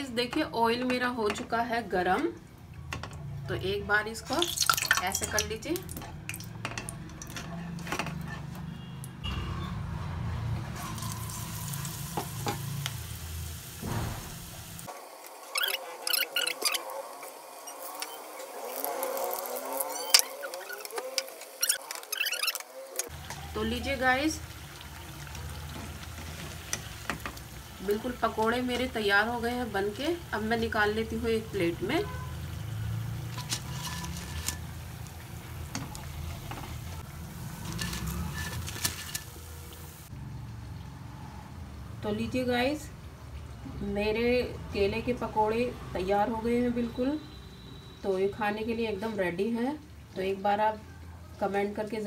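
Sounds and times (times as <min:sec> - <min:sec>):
deep-frying sizzle: 0:04.0 - 0:08.5, 0:09.8 - 0:50.7
hot oil crackling and popping: 0:04.1 - 0:09.1, 0:10.7 - 0:40.1.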